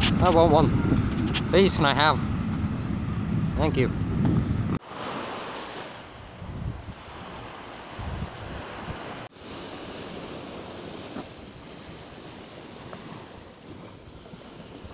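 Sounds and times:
wind buffeting microphone: 0.0 - 4.8, 6.1 - 14.9
small waves breaking on sand: 4.8 - 14.9.

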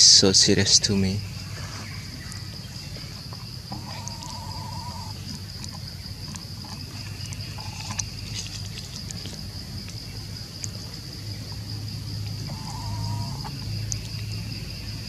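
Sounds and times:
high-pitched insect chorus: 0.0 - 15.0
wavering insect call: 0.0 - 15.0.

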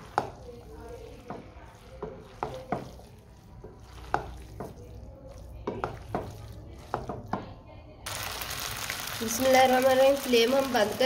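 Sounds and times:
spatula clacking and scraping pan: 0.0 - 5.0, 5.6 - 7.5
faint sizzle from hot pan: 8.1 - 11.0.

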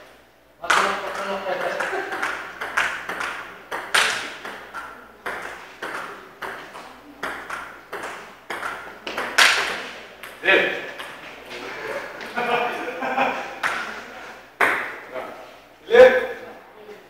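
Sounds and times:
table tennis ball clicking: 0.7 - 10.4.

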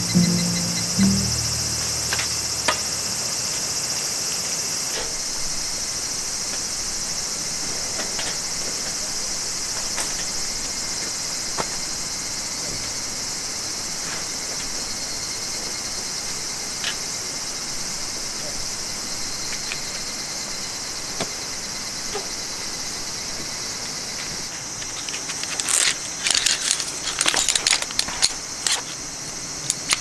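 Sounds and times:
insects chirping: 0.0 - 10.9
clicks and knocks of camping gear: 24.8 - 29.0.

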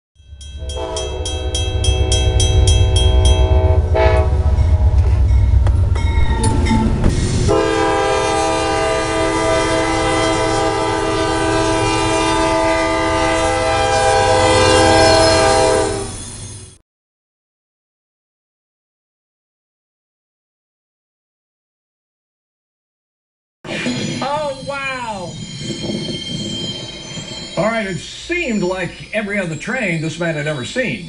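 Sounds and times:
heavy low train rumble: 0.2 - 16.8, 23.7 - 31.0
locomotive horn blasts: 0.6 - 5.4, 7.5 - 16.2.

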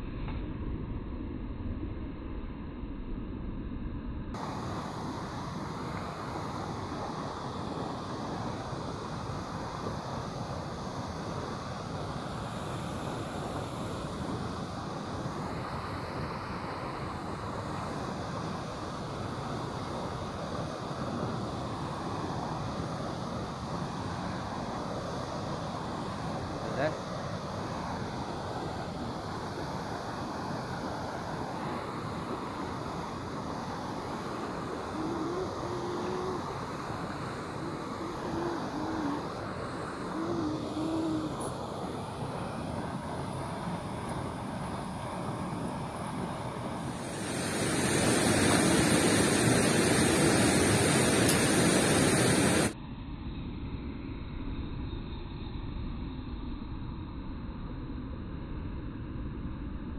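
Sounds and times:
turbulent water rushing: 4.4 - 52.8
wind on microphone: 27.7 - 52.8
faint wavering tone: 31.8 - 47.2, 52.4 - 59.9.

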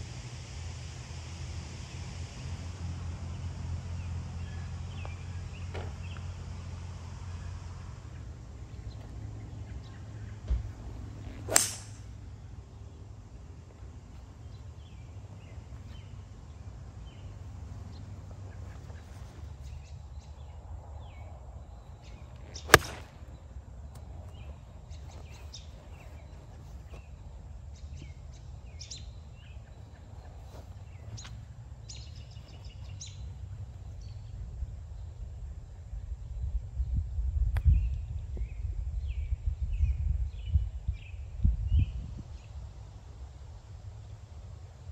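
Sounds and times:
golf club striking ball: 11.2 - 12.2, 22.5 - 23.4
birds chirping: 14.0 - 34.4.

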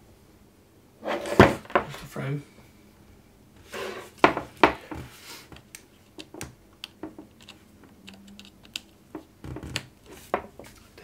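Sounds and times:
hands clicking and tapping: 5.5 - 10.5.

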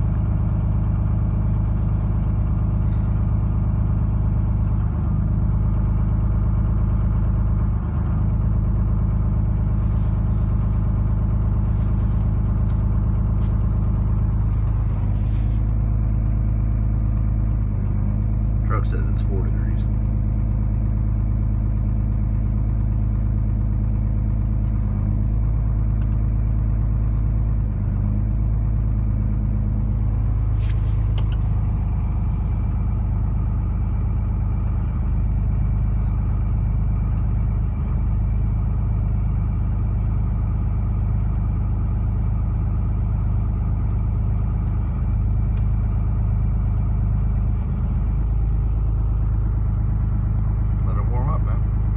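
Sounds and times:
diesel engine idling: 0.0 - 51.9
click: 26.0 - 26.2.

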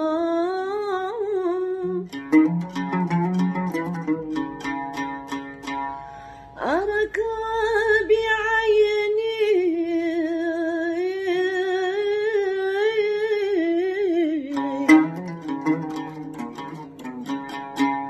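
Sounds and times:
woman singing wordless melody: 0.0 - 2.2, 6.6 - 15.6.

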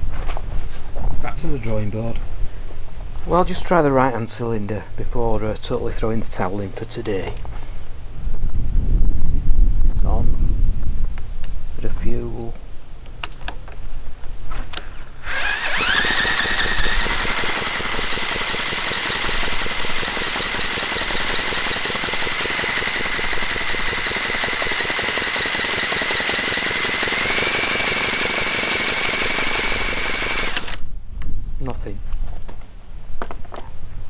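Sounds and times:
cordless drill whining: 14.8 - 30.9
engine turning over without firing: 14.8 - 30.9.

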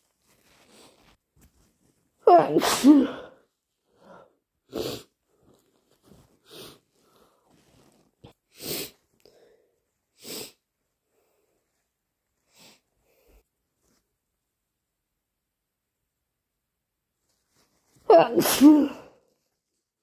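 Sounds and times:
person sneezing loudly: 2.2 - 3.4, 18.1 - 19.2
person sniffling: 2.6 - 3.4.

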